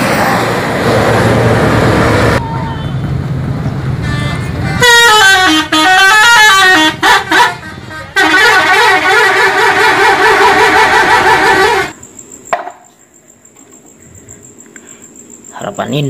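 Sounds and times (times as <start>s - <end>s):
musical bus air horn melody: 4.0s - 12.0s.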